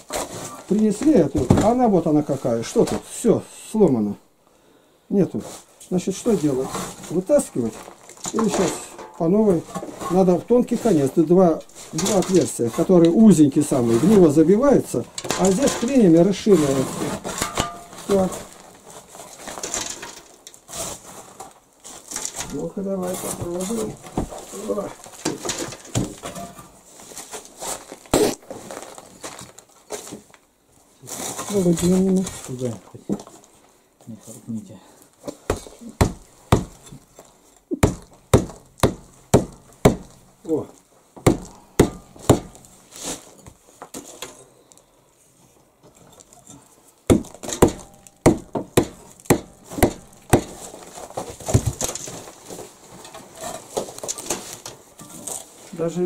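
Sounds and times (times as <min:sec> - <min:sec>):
brick and clay crumbling: 0:06.5 - 0:20.7, 0:21.4 - 0:30.1, 0:45.9 - 0:55.5
pick striking brickwork: 0:15.0 - 0:18.6, 0:35.4 - 0:37.1, 0:37.7 - 0:40.4, 0:41.2 - 0:42.8, 0:47.1 - 0:52.1.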